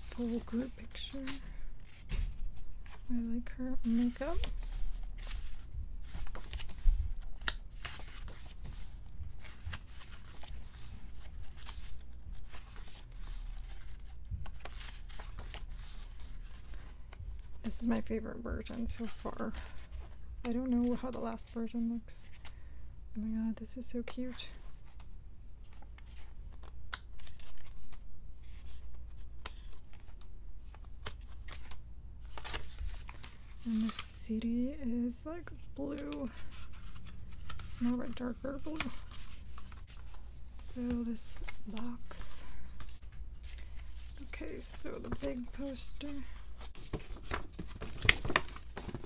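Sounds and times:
book pages turning: 0:00.0 - 0:21.6, 0:24.0 - 0:49.0.

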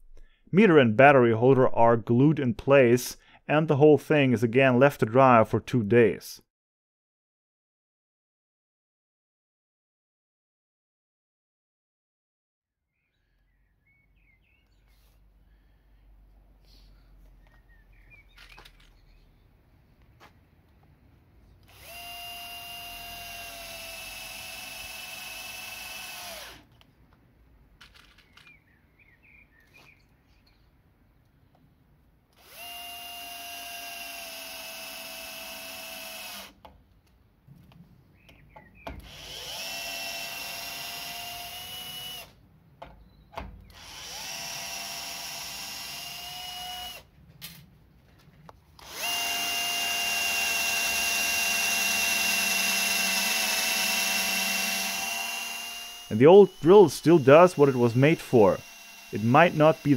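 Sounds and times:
cordless drill motor whine: 0:21.6 - 0:26.6, 0:32.4 - 0:36.6, 0:39.0 - 0:42.4, 0:43.8 - 0:47.1, 0:48.8 - 0:59.9
drill drilling into wood: 0:21.6 - 0:26.7, 0:32.4 - 0:36.6, 0:39.0 - 0:42.4, 0:43.7 - 0:47.1, 0:48.8 - 0:59.9
drill driving screws into wood: 0:21.6 - 0:26.8, 0:32.3 - 0:36.7, 0:38.9 - 0:42.4, 0:43.6 - 0:47.6, 0:48.8 - 0:59.9.

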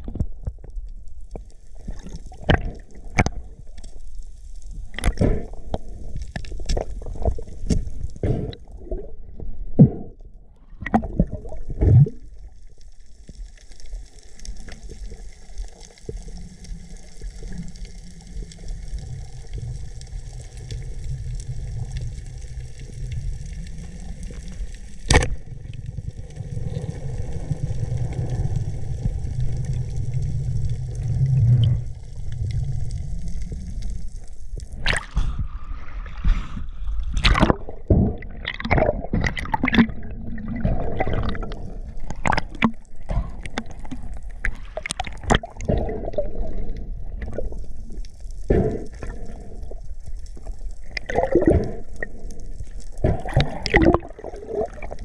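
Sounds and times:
water gurgling and sloshing: 0:00.0 - 0:55.0
low rumble: 0:18.3 - 0:44.7
sharp knocks and splashes: 0:34.8 - 0:35.4, 0:37.1 - 0:43.9.

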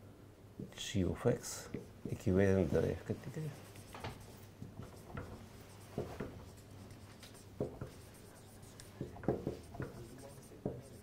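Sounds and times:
marker pen writing on whiteboard: 0:03.3 - 0:11.0.

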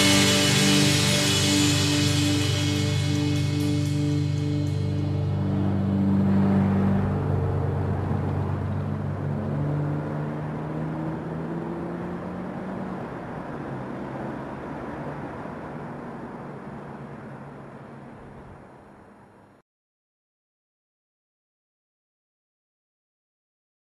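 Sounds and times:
distorted punk rock chord: 0:00.0 - 0:07.9.

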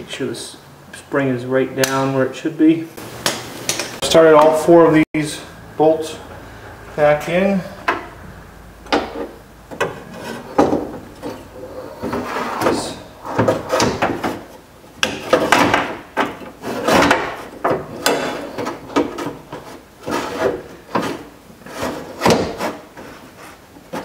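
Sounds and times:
metal clunks and scraping: 0:07.7 - 0:08.2, 0:08.8 - 0:24.0.

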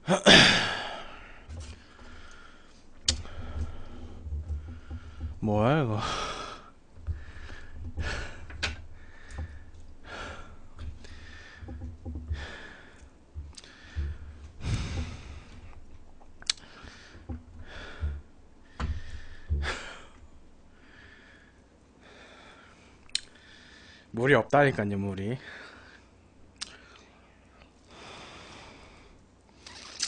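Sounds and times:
heavy breaths through nose: 0:06.0 - 0:15.9.

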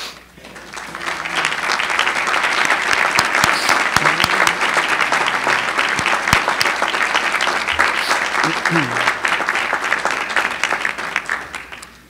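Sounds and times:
audience clapping: 0:00.4 - 0:12.0.

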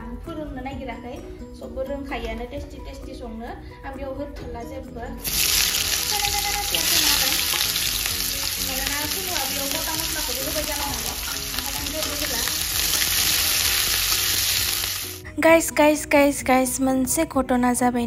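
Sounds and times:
onions sizzling in hot oil: 0:05.2 - 0:15.2.

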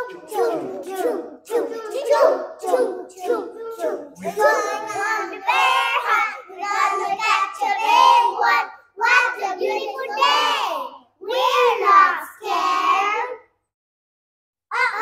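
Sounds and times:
young child singing: 0:00.0 - 0:13.5.

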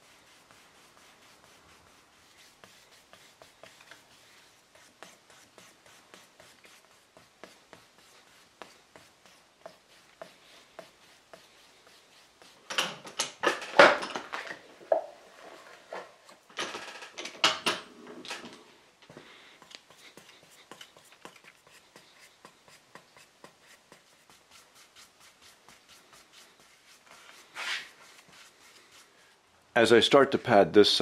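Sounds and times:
sandpaper rubbing on wood: 0:00.0 - 0:12.7, 0:19.8 - 0:29.4.

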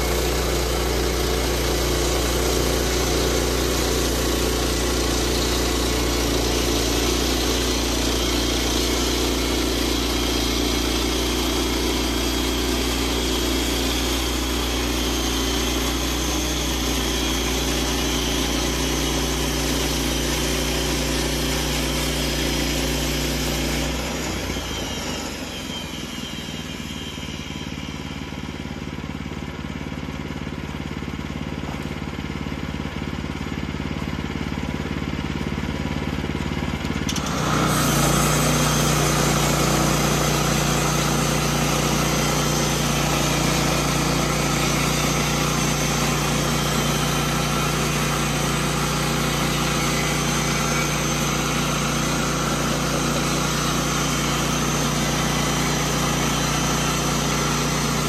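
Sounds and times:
band blade cutting log: 0:00.0 - 0:25.0, 0:37.0 - 0:58.0
sawmill engine drone: 0:00.0 - 0:58.0.

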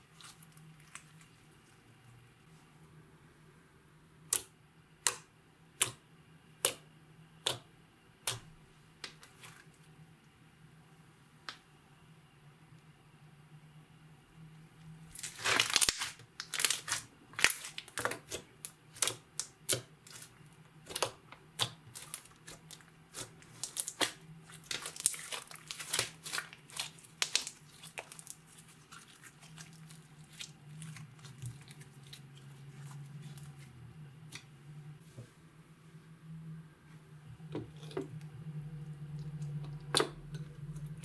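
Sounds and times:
sticky slime crackles and pops: 0:15.2 - 0:32.2.

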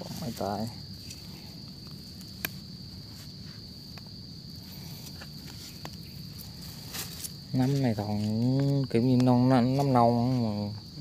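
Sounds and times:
insects buzzing: 0:00.0 - 0:11.0
stick scratching in dry leaves: 0:05.0 - 0:08.6.

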